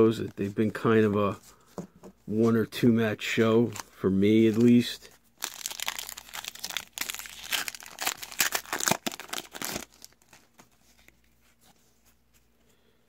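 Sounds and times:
card pack wrapper crinkling and tearing: 3.6s - 11.4s.

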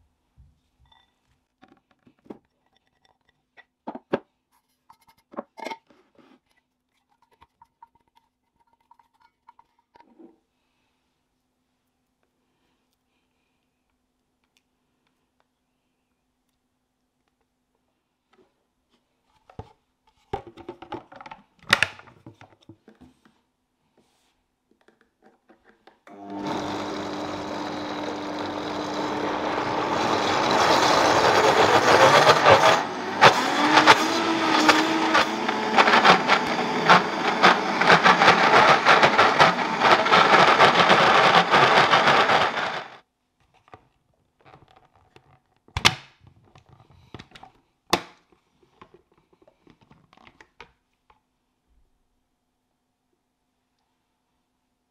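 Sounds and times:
blender running: 26.1s - 43.0s.

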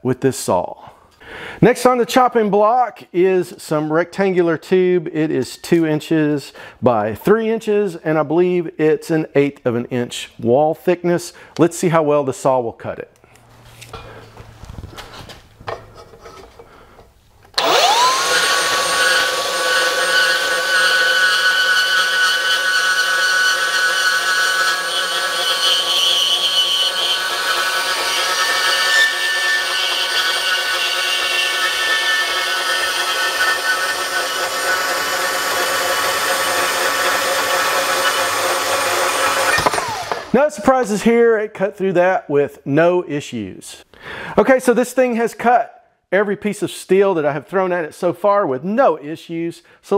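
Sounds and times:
band saw cutting steel tube: 17.6s - 40.5s.

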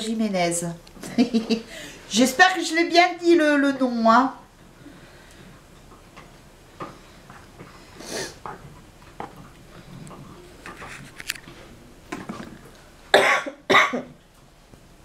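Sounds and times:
woman coughing: 13.1s - 14.2s.

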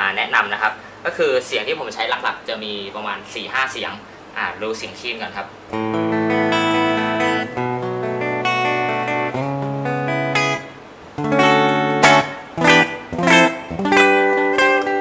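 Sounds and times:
electric guitar chords strummed: 5.7s - 15.0s.

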